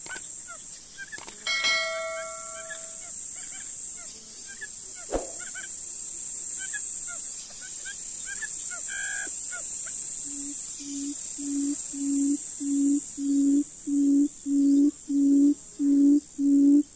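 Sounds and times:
high insect drone: 0.0 - 16.9
bird chirps: 1.1 - 3.1
sharp snap: 5.1 - 5.5
low repeated hooting call: 10.3 - 16.9.

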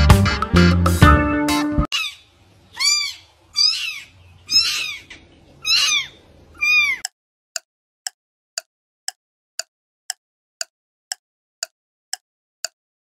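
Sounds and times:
kitten mewing: 2.8 - 7.0.

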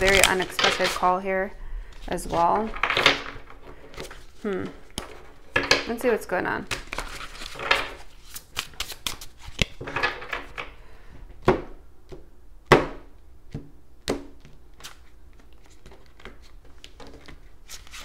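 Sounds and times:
cards riffling: 0.0 - 1.1, 6.7 - 9.8.

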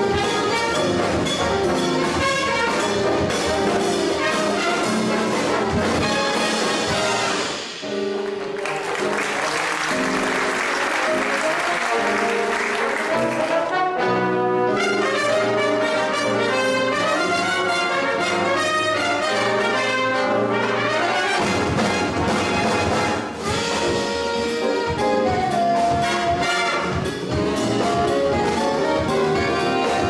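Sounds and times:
trumpets and trombones playing: 0.0 - 7.8, 9.4 - 30.0
cymbals: 0.0 - 8.2.

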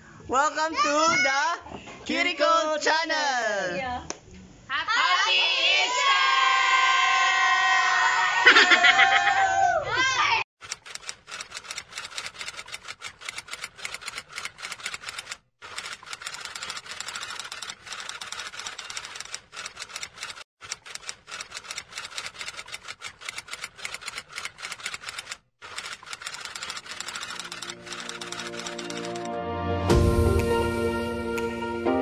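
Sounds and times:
typewriter key clatter: 10.7 - 29.3.

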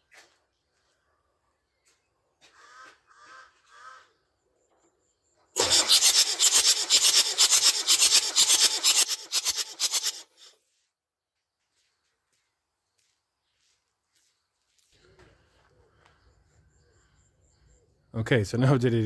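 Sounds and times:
engine cranking rhythmic chuffing: 5.6 - 10.5.

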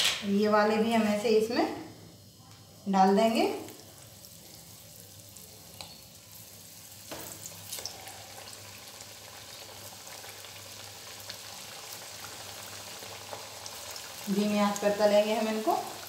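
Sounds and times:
patties deep-frying in oil: 0.0 - 16.0.

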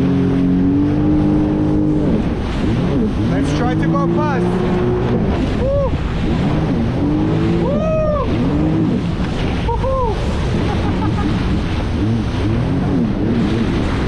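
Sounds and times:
jet ski engine running: 0.0 - 14.0
wind buffeting microphone: 0.0 - 14.0.

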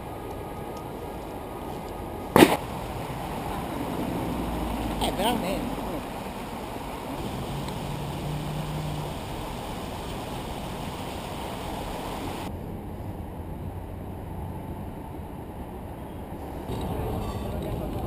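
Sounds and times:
city traffic rushing: 0.0 - 18.0.

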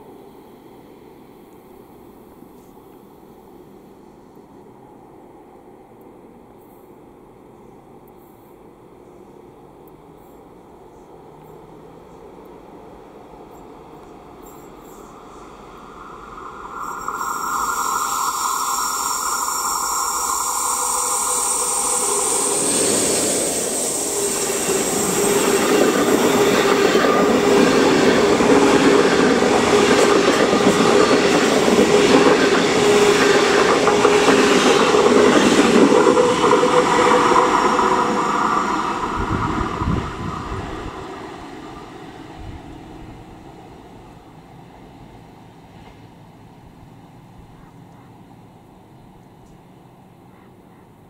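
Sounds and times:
locomotive whine: 11.0 - 46.0
train wheels clacking on rails: 13.4 - 42.0.

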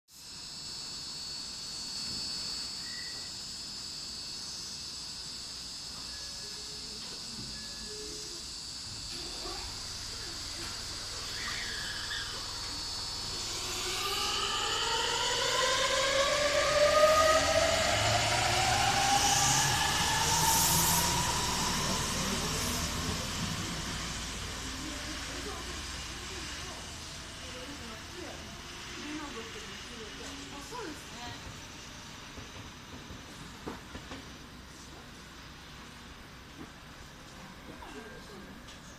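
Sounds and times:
train equipment whine and hiss: 0.1 - 38.9
brief beep: 2.8 - 3.3
low rumble: 9.0 - 28.8.

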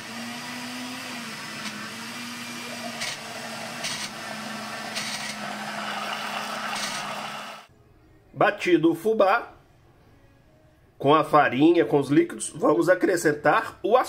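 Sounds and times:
blender motor running: 0.0 - 7.7.

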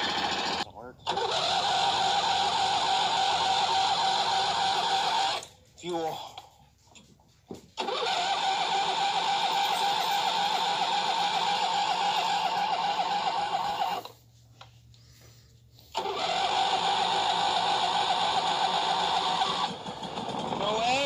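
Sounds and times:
riding tractor engine: 0.0 - 14.5, 15.2 - 21.0.

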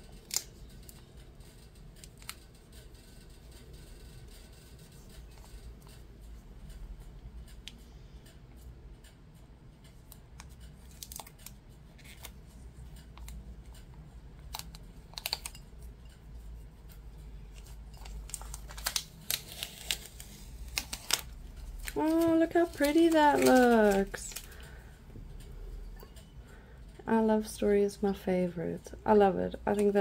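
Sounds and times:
plastic tape crinkling: 0.1 - 1.0, 10.9 - 12.4, 17.5 - 24.6.

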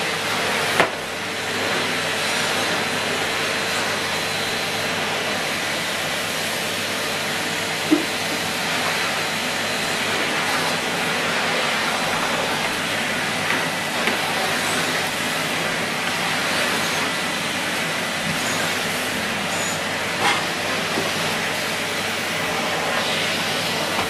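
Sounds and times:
vacuum cleaner running: 0.0 - 24.0
floor tool on carpet: 7.4 - 24.0.

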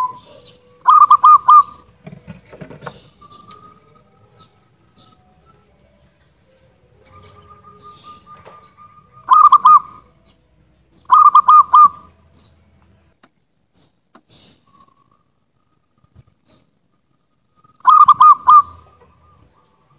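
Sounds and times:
dove cooing: 0.0 - 10.3, 11.1 - 12.2, 17.8 - 19.9.

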